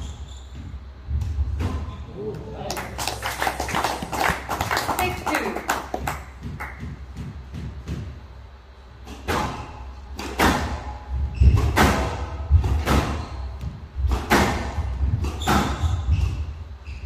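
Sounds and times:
thudding footsteps: 6.2s - 8.5s
squash ball hits echoing: 9.1s - 16.3s.

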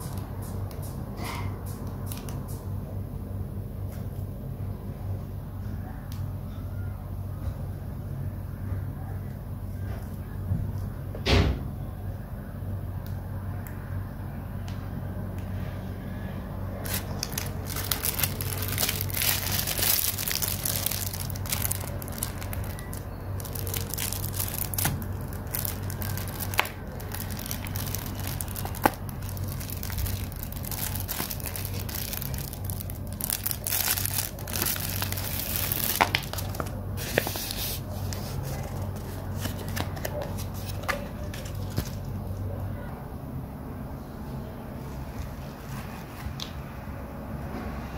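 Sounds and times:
steady low hum: 0.0s - 47.9s
plastic packaging crinkling: 16.8s - 42.3s.

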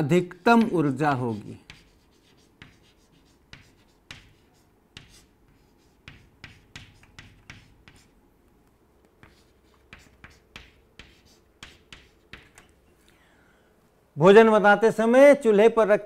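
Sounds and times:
chalk tapping and scraping on blackboard: 0.3s - 8.2s, 9.0s - 12.8s.

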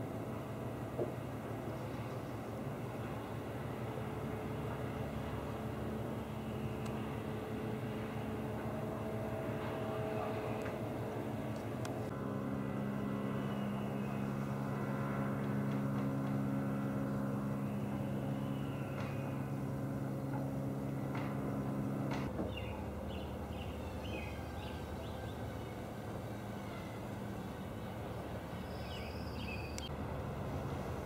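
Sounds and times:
motorboat engine humming: 0.0s - 31.0s.

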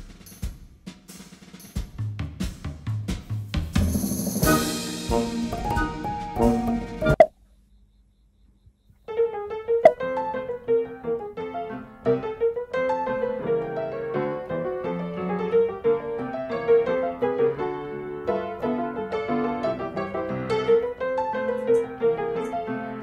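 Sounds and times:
piano music: 4.0s - 7.2s, 9.2s - 23.0s.

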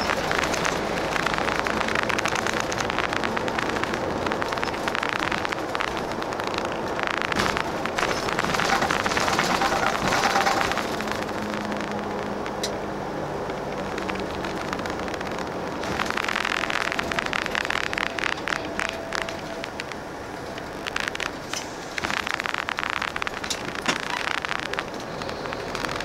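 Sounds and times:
bus engine drone: 0.0s - 26.0s
road noise: 0.0s - 26.0s.

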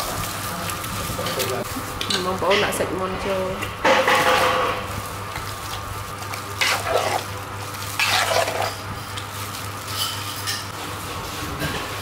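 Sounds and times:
wet squelching and sloshing: 5.5s - 8.8s.

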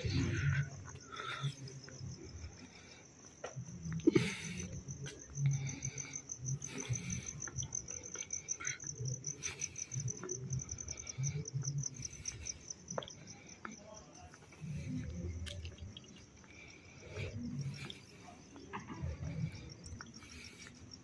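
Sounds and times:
crickets chirping: 0.0s - 21.0s
footsteps on paving: 12.0s - 20.8s.

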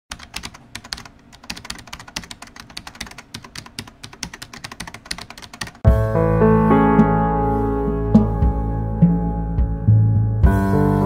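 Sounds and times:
rapid keyboard typing: 0.1s - 5.8s.

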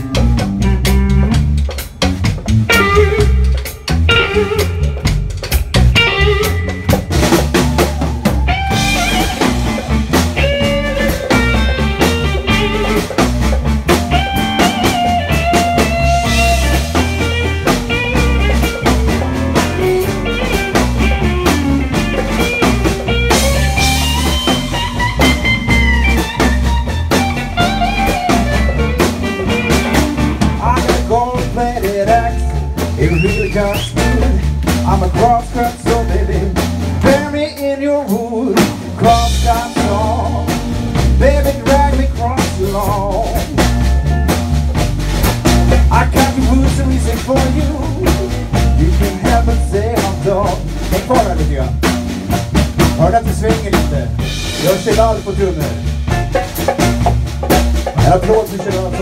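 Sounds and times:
blues band playing: 0.0s - 59.0s
lead guitar bent notes: 2.0s - 30.8s.

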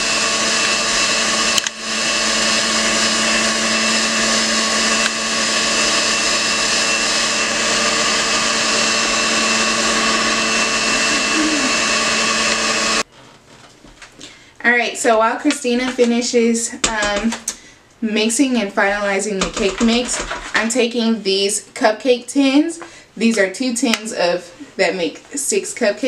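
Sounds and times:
stand mixer whipping batter: 0.0s - 13.0s.

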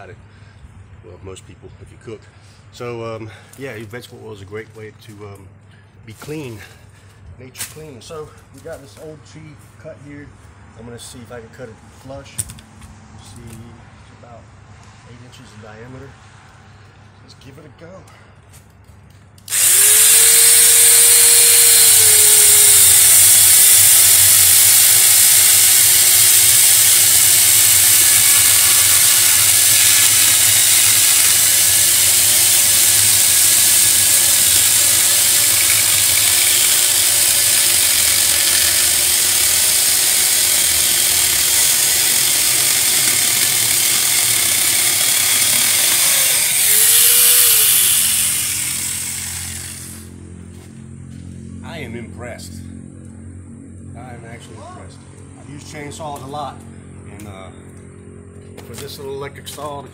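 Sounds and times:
chainsaw attachment cutting wood: 19.4s - 50.2s.

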